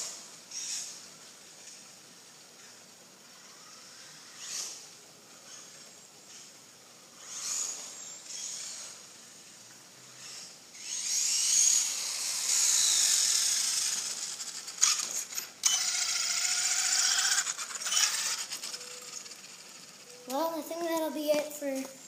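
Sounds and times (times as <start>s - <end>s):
electric motor whining: 7.2s - 9.1s, 10.2s - 20.2s.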